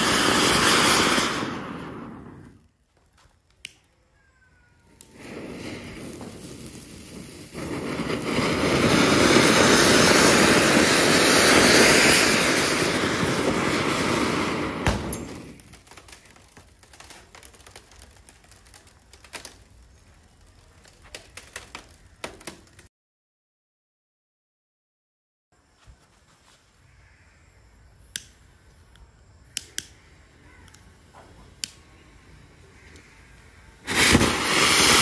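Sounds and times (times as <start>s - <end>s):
fountain firework hissing: 0.0s - 2.8s, 4.0s - 22.6s, 29.2s - 35.0s
sharp crack: 0.0s - 4.2s, 4.9s - 22.9s, 28.1s - 28.4s, 29.5s - 32.1s, 32.7s - 35.0s
faint scattered clicks: 2.6s - 5.2s, 28.0s - 32.1s, 32.8s - 33.5s.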